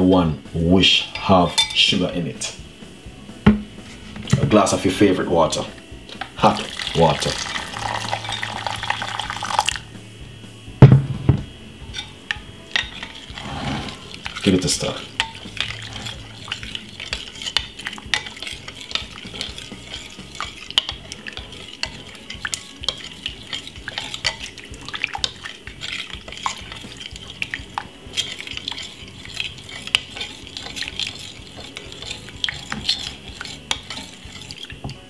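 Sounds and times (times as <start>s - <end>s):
metal spoon clinking on glass: 1.2s - 1.9s, 7.2s - 8.9s, 11.9s - 13.4s, 14.2s - 34.7s.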